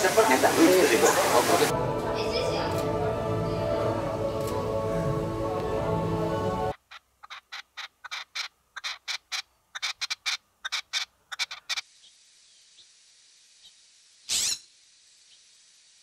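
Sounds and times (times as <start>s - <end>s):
faint outdoor hiss: 0.0s - 16.0s
partridge calling harsh notes: 6.7s - 12.2s.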